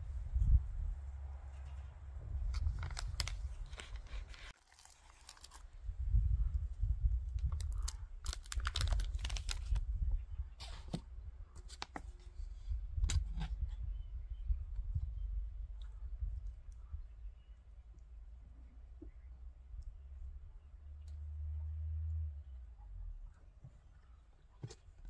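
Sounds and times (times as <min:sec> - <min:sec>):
wind rumbling on microphone: 0:00.0 - 0:04.5, 0:05.5 - 0:17.6.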